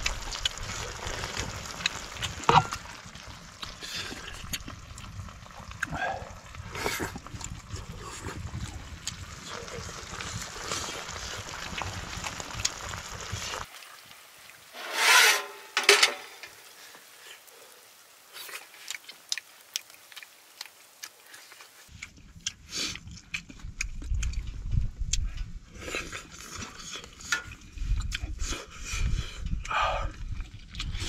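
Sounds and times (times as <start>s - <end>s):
chopsticks scraping pan: 14.8s - 16.6s.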